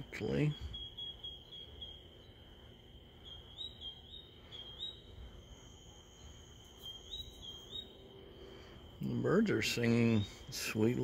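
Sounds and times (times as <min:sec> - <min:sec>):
bird chirping: 0:00.0 - 0:11.0
insect trill: 0:00.0 - 0:11.0.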